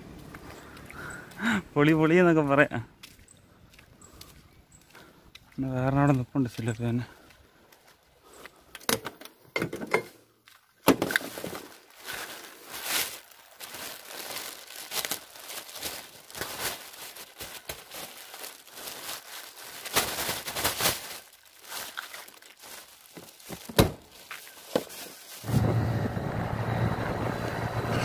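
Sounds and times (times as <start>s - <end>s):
plastic bag crinkling: 11.2s - 25.5s.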